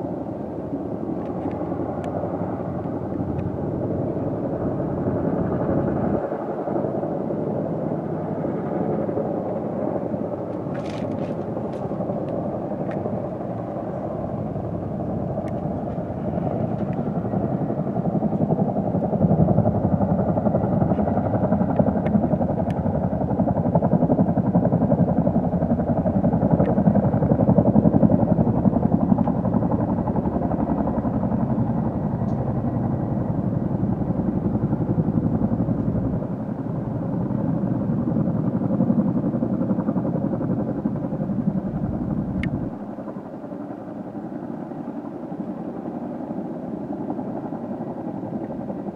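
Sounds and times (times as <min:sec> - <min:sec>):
helicopter rotor beat: 0:00.0 - 0:48.9
turbine noise: 0:41.2 - 0:42.9.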